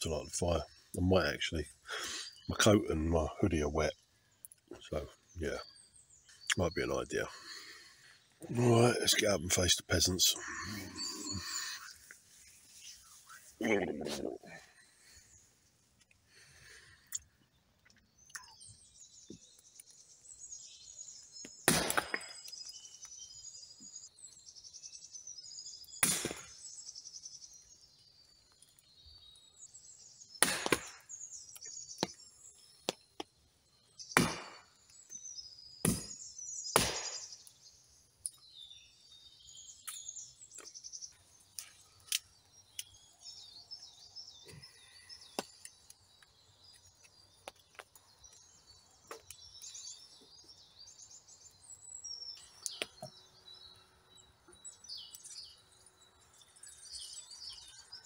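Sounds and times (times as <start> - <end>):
birds singing: 0.0 - 58.0
axe chopping wood: 21.7 - 22.3, 26.0 - 26.5, 30.4 - 31.0, 34.2 - 34.6, 35.8 - 36.2, 36.8 - 37.2.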